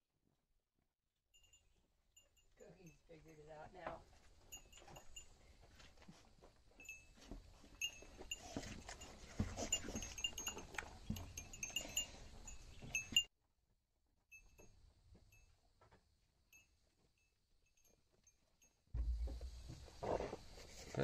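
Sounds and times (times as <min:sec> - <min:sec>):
goat chewing watermelon: 0:07.2 - 0:13.1
high tinkling notes: 0:09.6 - 0:13.3.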